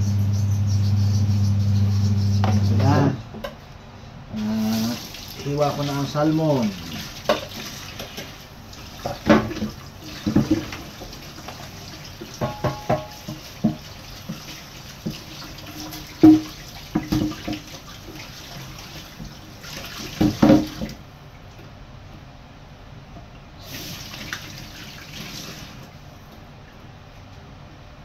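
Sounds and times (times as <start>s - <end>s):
tap running into metal sink: 9.0s - 17.8s, 20.0s - 21.0s
cutting board knocking on sink: 12.4s - 13.9s, 16.2s - 17.6s, 20.2s - 21.0s.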